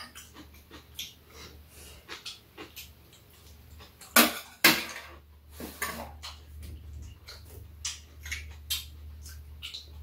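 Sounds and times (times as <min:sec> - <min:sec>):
chewing and slurping: 0:00.0 - 0:04.2
steady low hum: 0:05.2 - 0:10.0.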